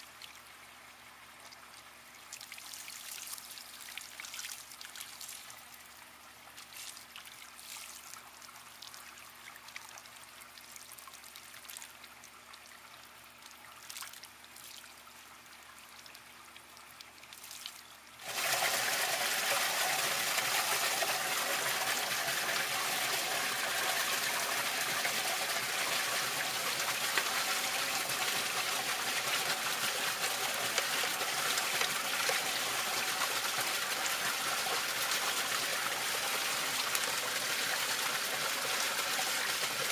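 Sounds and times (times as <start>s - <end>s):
water rushing through filter: 18.2s - 39.9s.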